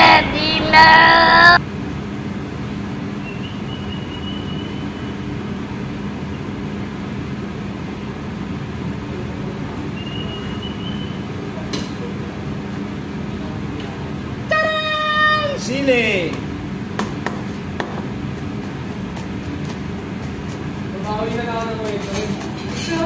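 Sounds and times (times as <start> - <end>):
faint high whistle: 3.2 - 5.3, 9.9 - 11.3.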